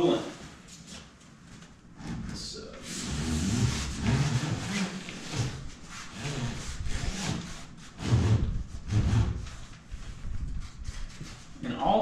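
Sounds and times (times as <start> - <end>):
pipe scraping through wall hole: 2.0 - 9.7.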